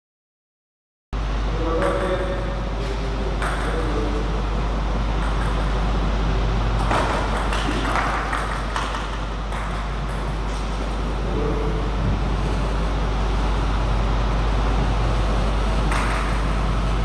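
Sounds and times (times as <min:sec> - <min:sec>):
steady low hum: 0:01.2 - 0:17.0
table tennis ball clicks: 0:05.2 - 0:05.7.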